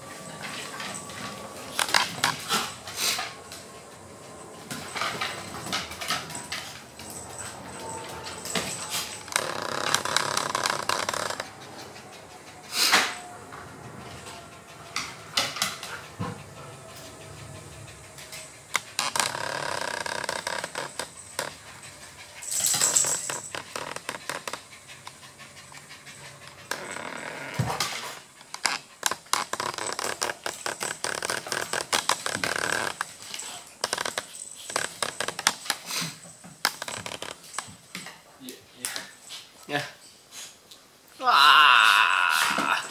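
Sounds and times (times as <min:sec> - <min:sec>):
dog panting: 0:00.0 - 0:36.7
dog claws clicking on wood floor: 0:27.6 - 0:38.2.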